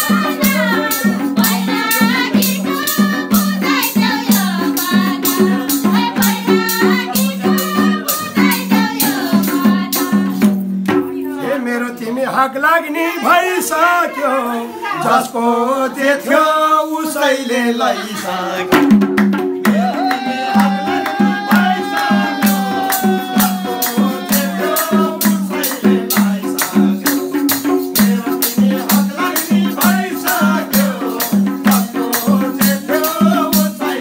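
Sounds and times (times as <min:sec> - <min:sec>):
person singing: 0:00.0 - 0:10.4, 0:19.6 - 0:34.0
rattling percussion: 0:00.0 - 0:11.4, 0:18.7 - 0:34.0
steady drum beat: 0:00.0 - 0:11.4, 0:18.6 - 0:34.0
held melody line: 0:00.0 - 0:11.8, 0:17.2 - 0:34.0.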